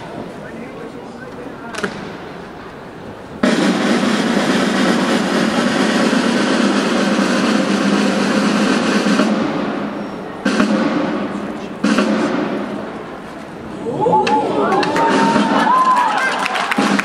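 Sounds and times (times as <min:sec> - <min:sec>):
snare drum rolls: 0:03.4 - 0:13.4, 0:14.2 - 0:17.0.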